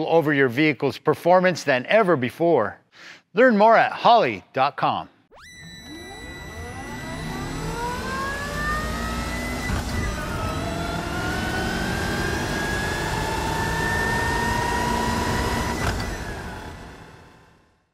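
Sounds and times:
race car engine revving: 5.9 - 17.4.

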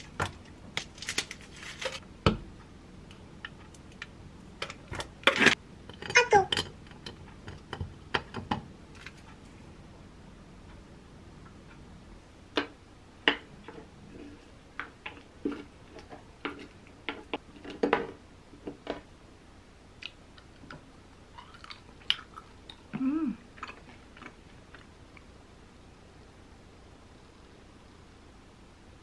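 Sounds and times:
chewing food: 21.4 - 25.3
person humming: 22.9 - 23.4.

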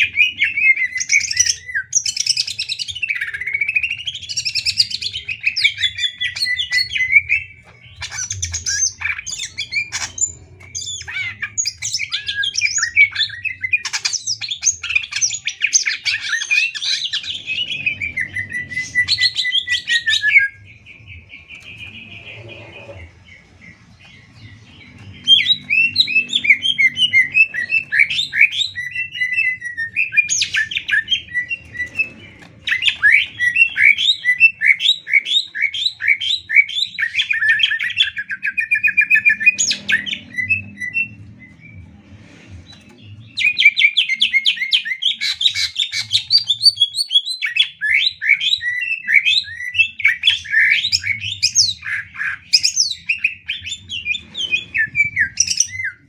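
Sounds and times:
bird singing chattering trills: 0.0 - 42.0.

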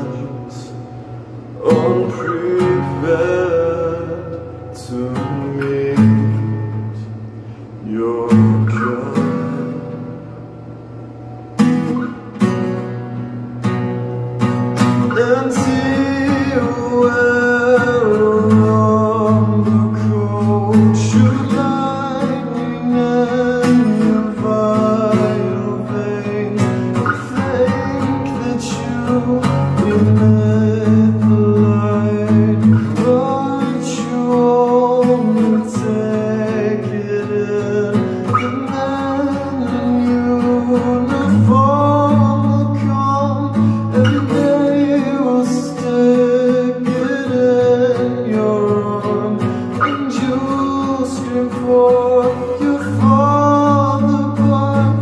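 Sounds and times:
acoustic guitar chords: 0.0 - 55.0
person singing: 15.1 - 55.0.

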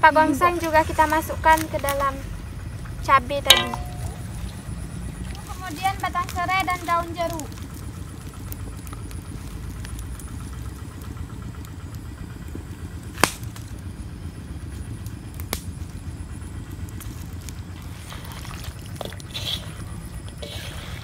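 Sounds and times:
steady low rumble: 0.0 - 20.5
wood fire popping: 0.4 - 20.6
hands mixing food in wok: 3.5 - 8.2, 17.1 - 21.0.

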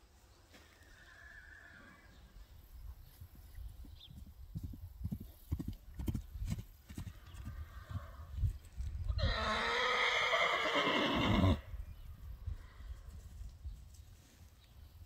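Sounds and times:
horse whinny: 0.9 - 2.1, 9.1 - 11.7
horse hooves trotting: 3.3 - 9.1.

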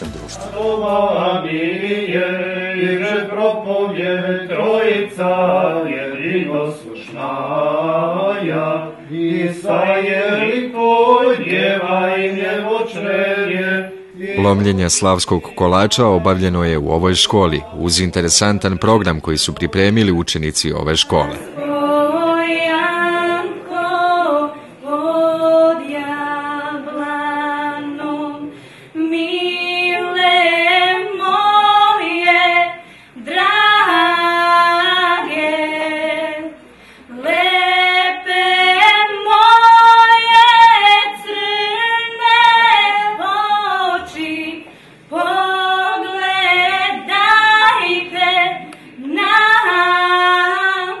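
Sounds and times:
young women singing unaccompanied: 0.0 - 14.4, 21.1 - 51.0.

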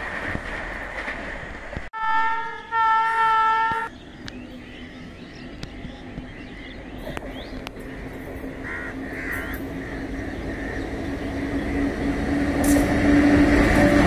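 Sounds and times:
train rumbling: 0.0 - 14.0
crows cawing: 8.5 - 10.9.

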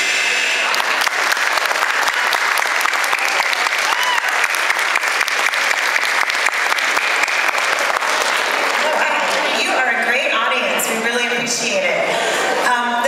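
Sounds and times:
audience applauding: 0.4 - 10.2.

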